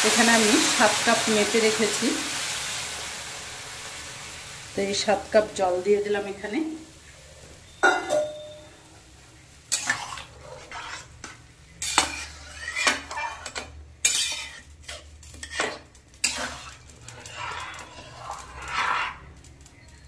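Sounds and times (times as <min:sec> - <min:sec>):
metal spatula scraping and clanking: 0:09.7 - 0:19.4.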